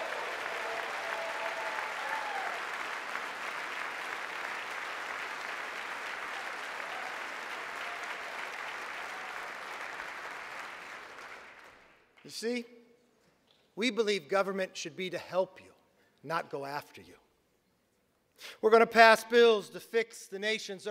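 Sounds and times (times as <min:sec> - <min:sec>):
crowd applauding: 0:00.0 - 0:12.2.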